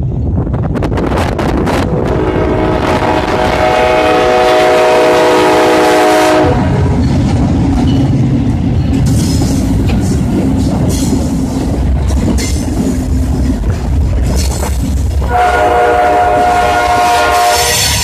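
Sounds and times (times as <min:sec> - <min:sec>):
locomotive engine rumble: 0:00.0 - 0:18.0
locomotive air horn: 0:01.7 - 0:06.9, 0:15.2 - 0:18.0.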